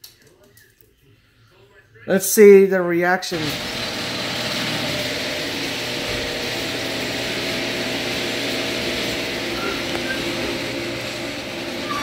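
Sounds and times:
machine drone with low hum: 0:03.4 - 0:12.0.

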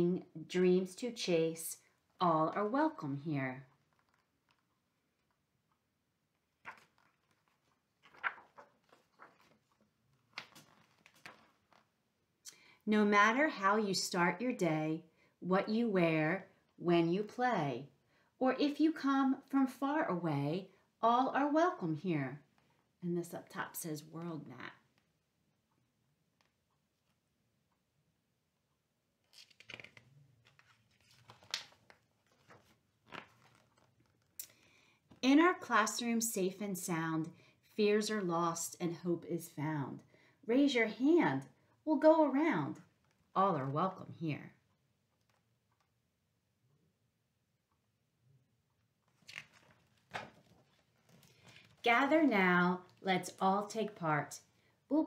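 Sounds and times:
book pages turning: 0:03.7 - 0:05.5, 0:06.4 - 0:12.0, 0:29.2 - 0:34.4, 0:49.0 - 0:51.9.

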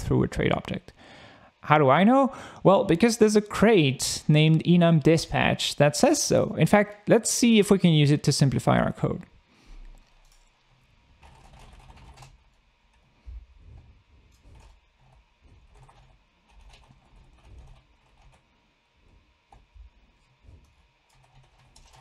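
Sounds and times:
faint keyboard typing: 0:09.8 - 0:13.1, 0:13.7 - 0:18.5, 0:19.1 - 0:22.0.

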